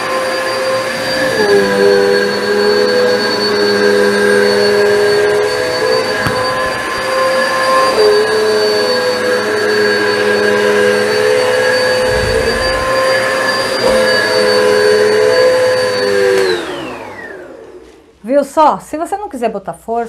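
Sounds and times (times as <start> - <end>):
vacuum motor spinning down: 0.0 - 18.0
vacuum cleaner whining: 0.0 - 18.2.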